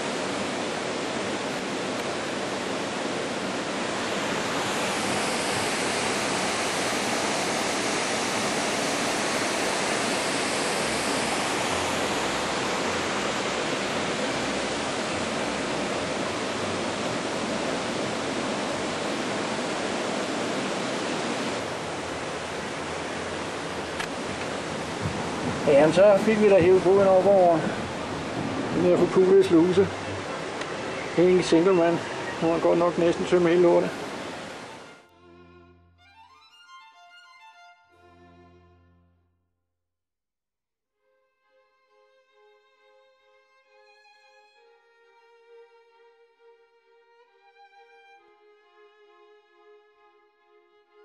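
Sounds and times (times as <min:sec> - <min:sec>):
water rushing through a lock: 0:00.0 - 0:34.9.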